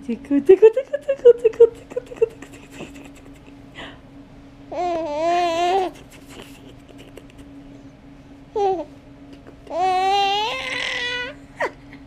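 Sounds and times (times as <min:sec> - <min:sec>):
baby giggling: 0:00.9 - 0:03.6, 0:04.8 - 0:07.5
baby wavering coo: 0:04.7 - 0:06.0, 0:09.7 - 0:11.4.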